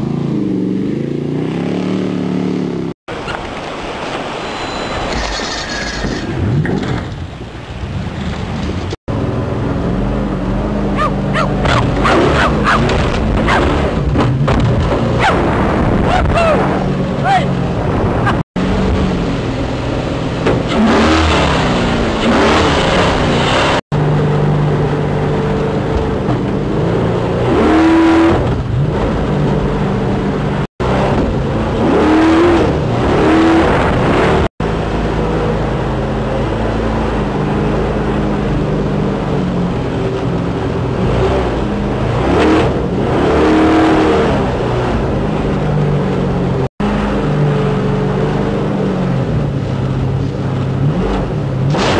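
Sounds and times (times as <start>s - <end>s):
water rushing past hull: 3.1s - 9.0s
boat engine revving: 7.7s - 51.9s.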